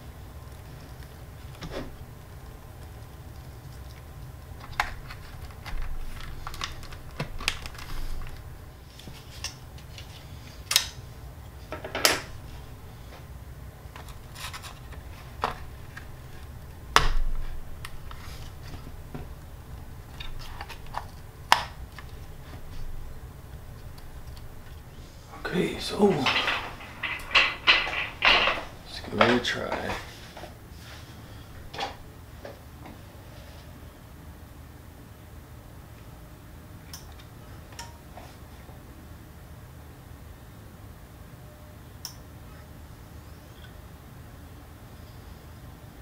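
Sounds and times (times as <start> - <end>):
low hum: 12.2 - 29.2.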